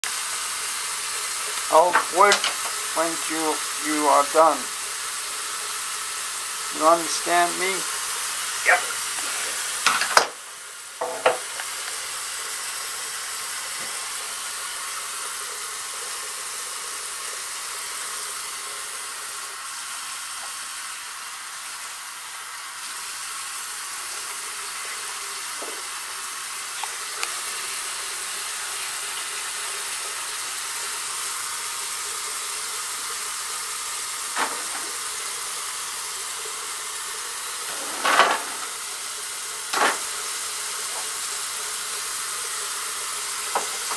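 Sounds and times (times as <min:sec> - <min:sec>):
steady high hiss: 0:00.9 - 0:12.2, 0:34.2 - 0:42.0
knocks on pipes: 0:11.0 - 0:11.7.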